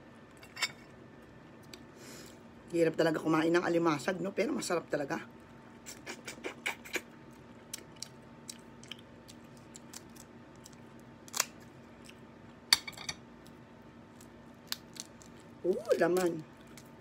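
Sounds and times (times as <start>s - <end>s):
scissors cracking crab shell: 9.6s - 11.6s.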